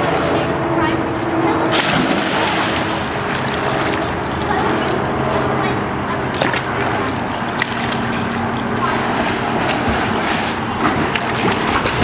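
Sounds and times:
pool water splashing and sloshing: 0.0 - 12.0.

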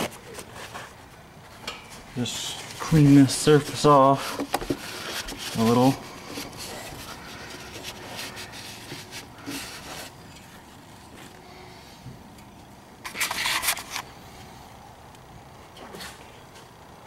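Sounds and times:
hand rubbing and scraping metal: 0.0 - 11.3.

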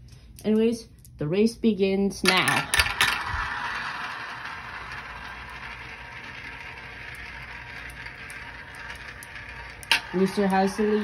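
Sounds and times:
marbles rolling in plastic bowls: 2.2 - 11.0.

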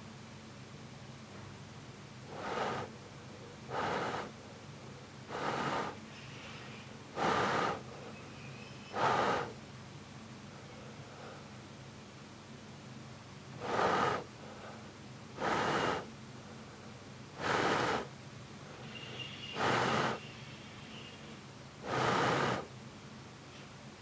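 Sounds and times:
puffs of breath: 2.2 - 9.6, 10.5 - 11.6, 13.6 - 20.5, 21.8 - 22.8.

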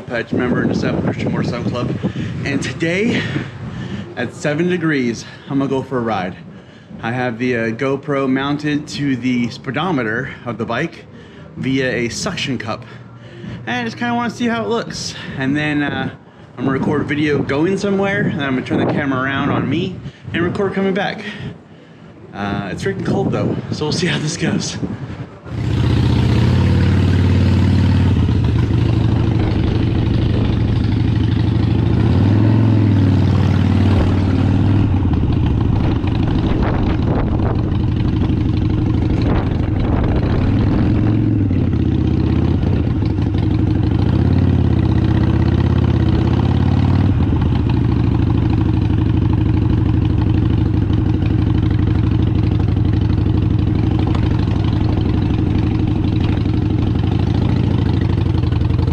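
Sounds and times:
motorcycle engine running: 24.8 - 58.9.

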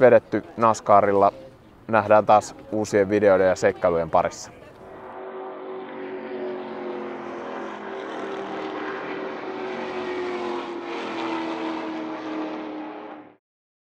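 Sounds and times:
motor droning: 4.6 - 13.4.

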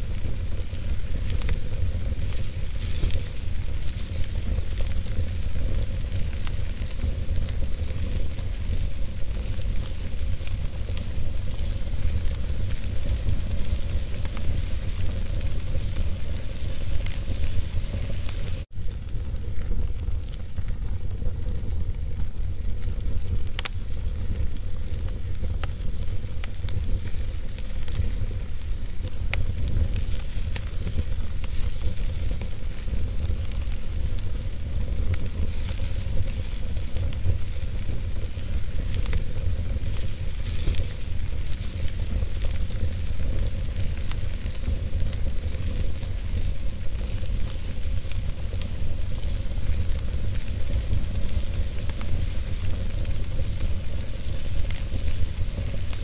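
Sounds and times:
wood fire crackling: 0.0 - 56.0.

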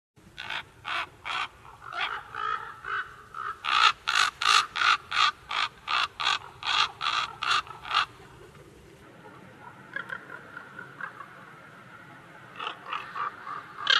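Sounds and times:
harsh caw-like animal calls: 0.4 - 8.3, 9.7 - 11.5, 12.5 - 13.9.

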